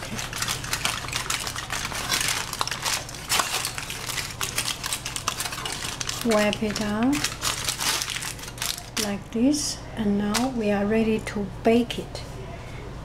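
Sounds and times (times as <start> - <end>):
aluminium foil crinkling: 0.0 - 9.2, 10.2 - 10.7.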